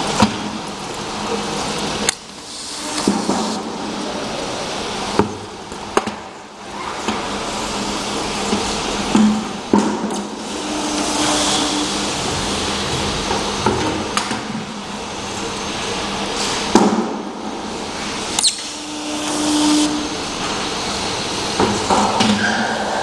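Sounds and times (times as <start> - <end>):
machine mechanical whir: 0.0 - 23.0
short low hum: 10.0 - 13.6, 18.0 - 21.3.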